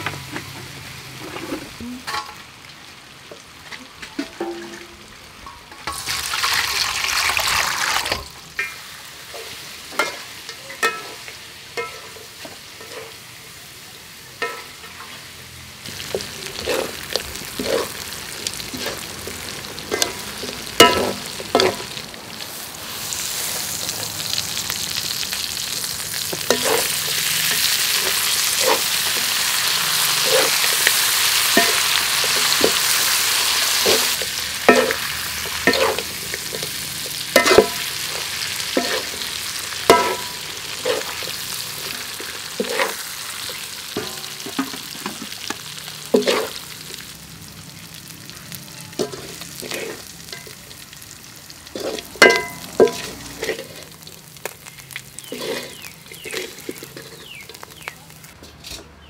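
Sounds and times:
chicken wings sizzling in wok: 0.0s - 59.0s
metal spatula scraping pan: 16.0s - 22.0s, 25.5s - 47.0s, 48.9s - 50.6s, 51.7s - 54.0s, 55.2s - 59.0s.

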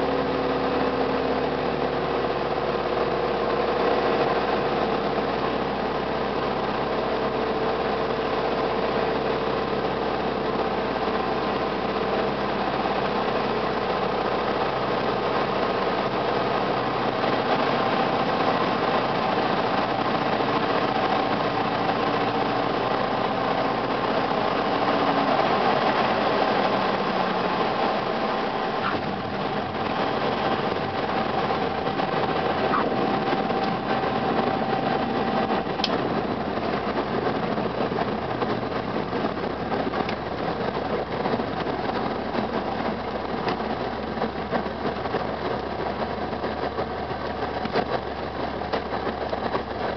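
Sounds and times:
propeller airplane engine: 0.0s - 49.9s
rushing air: 10.8s - 49.9s.

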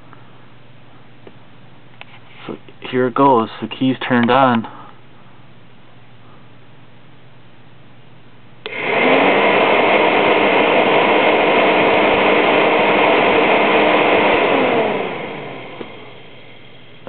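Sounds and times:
cooling fan whirring: 0.0s - 17.0s.

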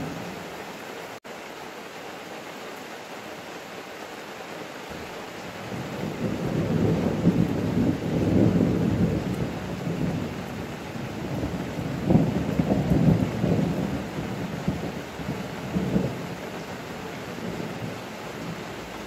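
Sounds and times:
rain hissing: 0.0s - 19.0s
thunder rumbling: 5.6s - 18.8s.

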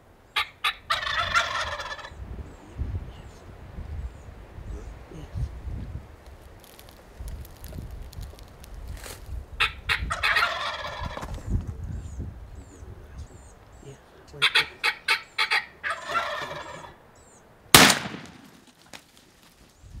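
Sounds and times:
turkey gobbling: 0.3s - 2.2s, 9.6s - 11.4s, 14.3s - 17.0s
shotgun blast: 17.7s - 18.6s.

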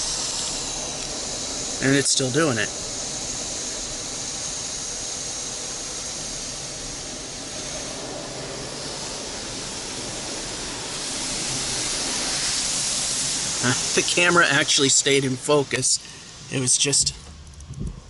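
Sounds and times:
car wash water jets spraying: 0.0s - 17.6s.

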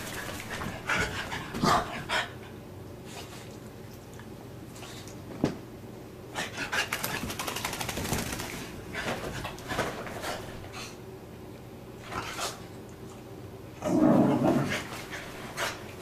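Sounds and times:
rapid ticks and huffs: 6.8s - 8.5s
dog paws scrabbling: 6.9s - 10.7s.

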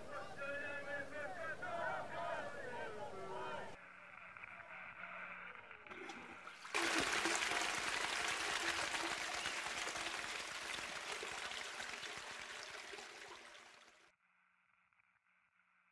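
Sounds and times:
toilet flushing: 5.9s - 14.0s.

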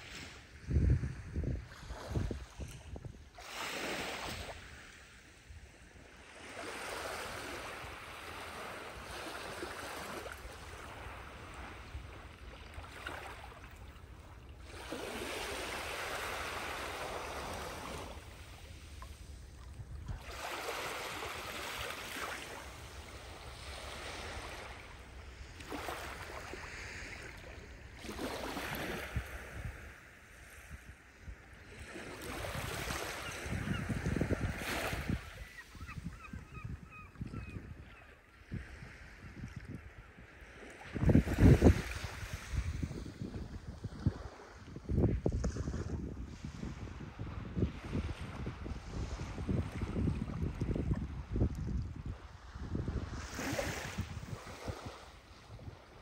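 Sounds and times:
waves lapping on sandy shore: 0.0s - 36.0s, 38.3s - 56.0s.

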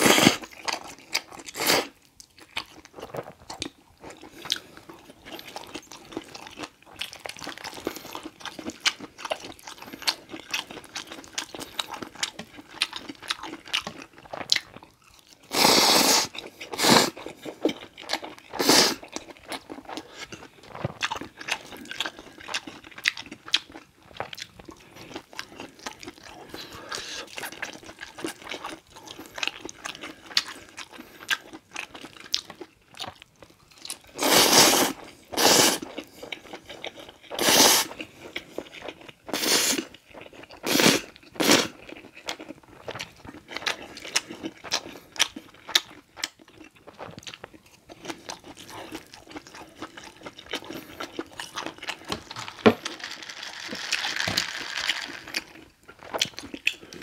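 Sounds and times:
loud noodle slurps: 0.0s - 0.5s, 15.5s - 17.3s, 18.6s - 19.0s, 34.2s - 35.9s, 37.4s - 38.0s, 39.3s - 39.9s, 40.6s - 41.8s
wet chewing: 0.0s - 57.0s.

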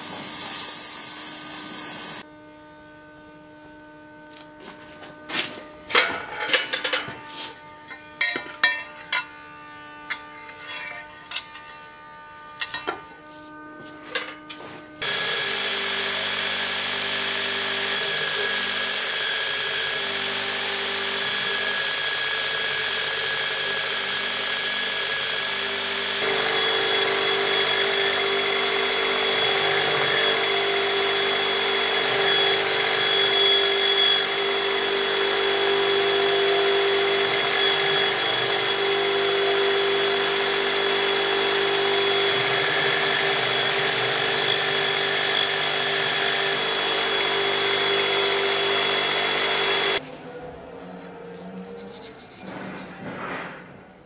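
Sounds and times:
electric belt grinder running: 0.0s - 2.3s, 14.2s - 50.0s.

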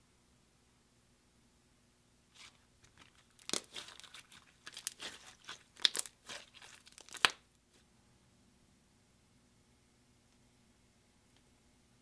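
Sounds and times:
slime squeezed with sticky crackles: 2.4s - 7.4s.

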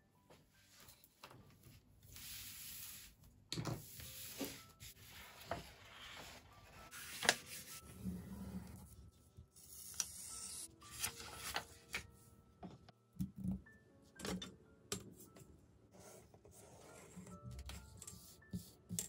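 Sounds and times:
paper sliding on tabletop: 3.9s - 8.6s
paper rustle: 4.4s - 7.8s, 10.9s - 12.0s.

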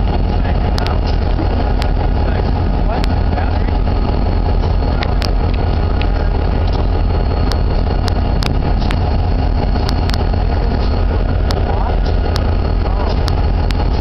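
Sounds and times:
wind buffeting microphone: 0.0s - 14.0s
sharp clicks: 0.6s - 14.0s.

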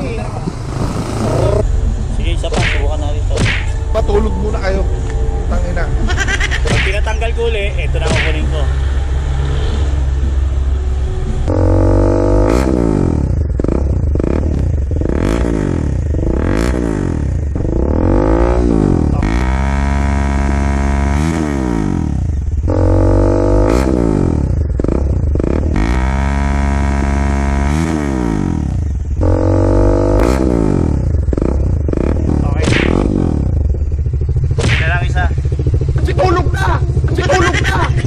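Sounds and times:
motorcycle engine revving and idling: 0.0s - 38.0s.

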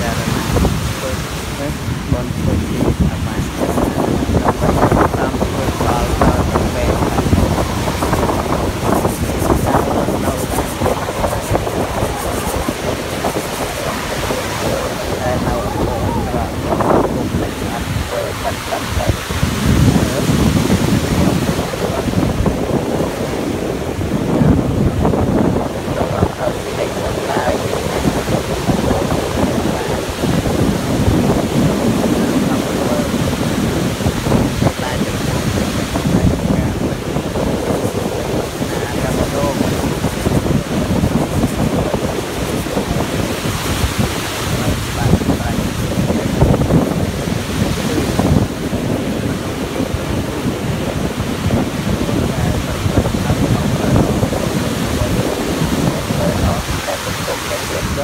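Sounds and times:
ocean surf washing on beach: 0.0s - 58.0s
wind rumbling on microphone: 0.0s - 58.0s.

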